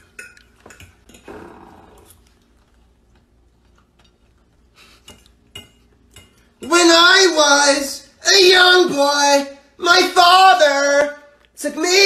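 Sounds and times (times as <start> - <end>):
cutlery clinking on plate: 0.0 - 1.4, 5.0 - 6.8.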